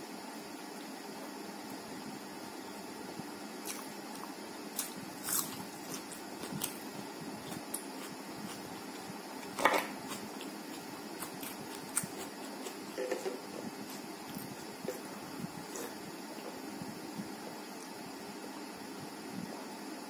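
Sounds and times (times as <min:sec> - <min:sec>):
steady background hiss: 0:00.0 - 0:20.0
chewing with wet mouth clicks: 0:07.5 - 0:13.1.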